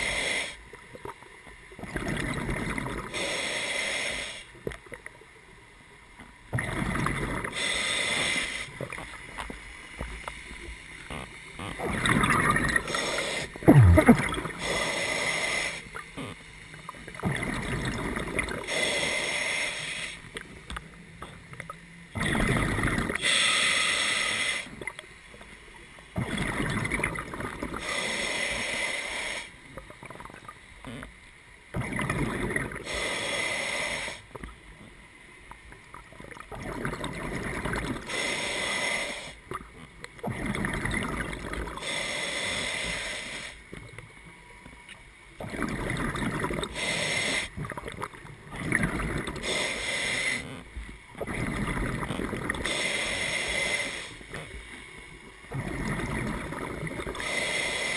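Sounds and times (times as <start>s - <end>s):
breathing through a regulator: 0.0s - 0.7s, 3.0s - 4.6s, 7.5s - 8.8s, 12.7s - 16.0s, 18.2s - 20.3s, 22.7s - 24.8s, 27.6s - 29.6s, 32.7s - 34.4s, 37.9s - 39.5s, 41.4s - 43.8s, 46.3s - 47.6s, 49.2s - 50.6s, 51.6s - 54.6s, 55.8s - 57.9s
exhaled bubbles bursting: 13.6s - 14.6s, 26.2s - 27.8s, 45.4s - 46.7s.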